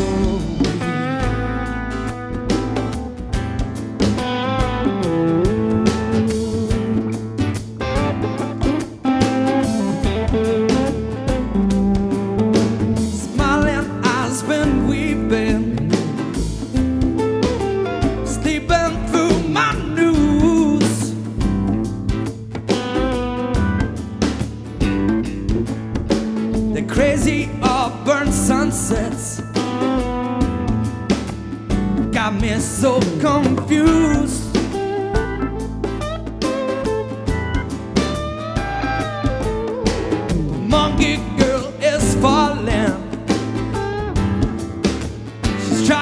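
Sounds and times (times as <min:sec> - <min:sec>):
person singing: 0:00.0 - 0:01.6, 0:12.6 - 0:16.2, 0:18.0 - 0:21.4, 0:26.7 - 0:29.8, 0:32.1 - 0:35.3, 0:40.5 - 0:43.8, 0:45.5 - 0:46.0
bass guitar: 0:00.0 - 0:46.0
electric guitar: 0:00.0 - 0:46.0
steady drum beat: 0:00.0 - 0:46.0.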